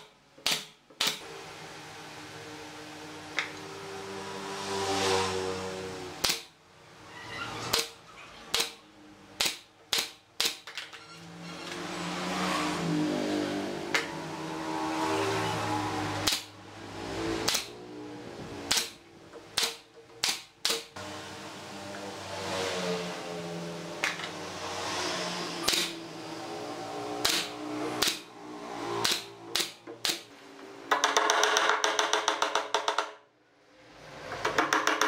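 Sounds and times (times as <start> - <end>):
pneumatic nailer firing: 0.4 - 1.3, 6.2 - 6.5, 7.7 - 8.8, 9.4 - 10.7, 16.2 - 16.5, 17.4 - 17.8, 18.6 - 21.0, 25.6 - 26.0, 27.2 - 28.3, 29.0 - 30.3.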